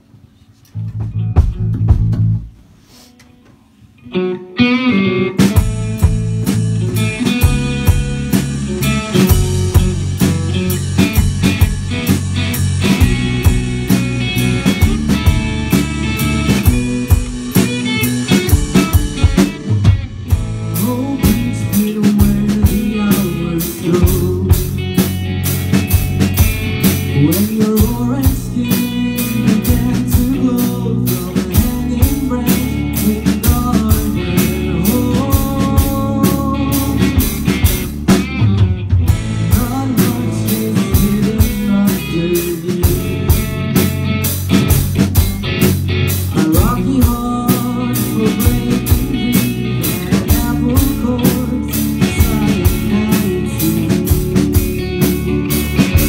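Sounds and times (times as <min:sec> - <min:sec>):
drum kit steady beat: 0:00.7 - 0:03.2, 0:05.4 - 0:56.0
electric guitar: 0:00.7 - 0:56.0
rock band playing: 0:00.8 - 0:56.0
person singing: 0:12.8 - 0:25.6, 0:27.0 - 0:37.8, 0:39.3 - 0:43.6, 0:46.3 - 0:56.0.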